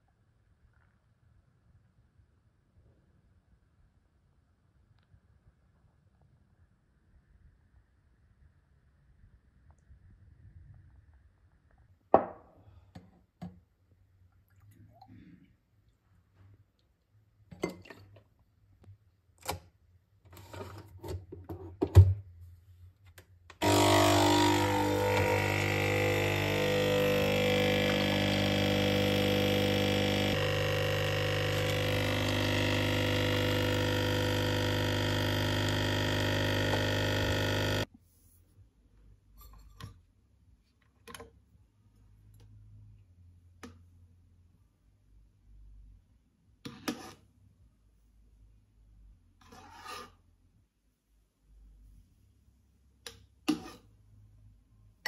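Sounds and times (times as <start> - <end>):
espresso machine pump running: 23.6 - 37.9.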